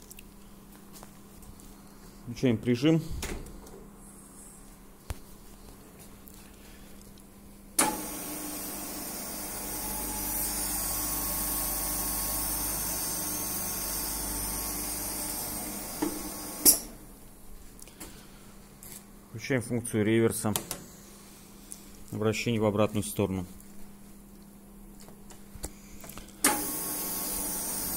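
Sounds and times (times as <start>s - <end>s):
milling machine whirring: 7.8s - 17.0s, 26.4s - 27.9s.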